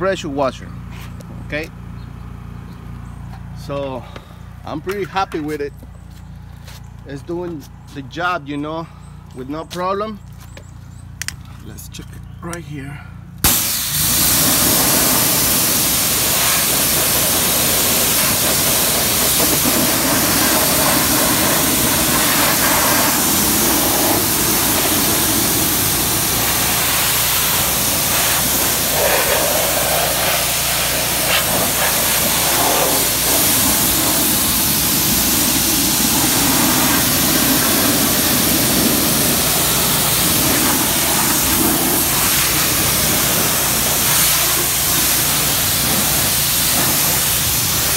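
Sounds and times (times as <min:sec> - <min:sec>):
pressure washer spray hissing: 0:13.4 - 0:47.9.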